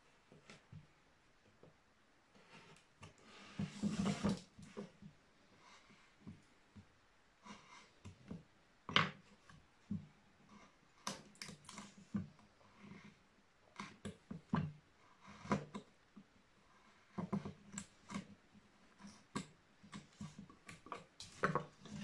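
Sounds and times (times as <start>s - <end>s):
wood scraping on wood: 2.4s - 5.0s, 16.8s - 22.0s.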